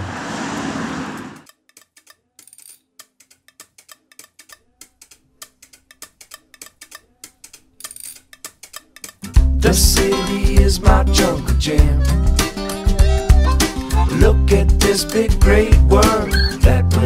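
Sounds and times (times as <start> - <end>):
car passing: 0.0 - 1.5
clicking percussion music: 1.4 - 16.7.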